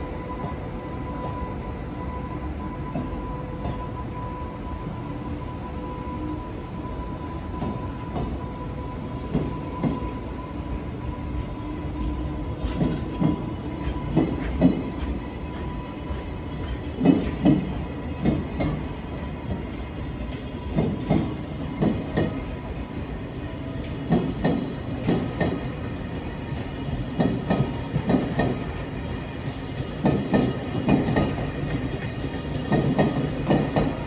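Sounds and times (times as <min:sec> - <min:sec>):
freight train rumble: 0:00.0 - 0:34.0
train wheel knocks: 0:12.0 - 0:18.9, 0:20.6 - 0:22.4, 0:24.1 - 0:25.7, 0:26.9 - 0:28.7, 0:30.0 - 0:34.0.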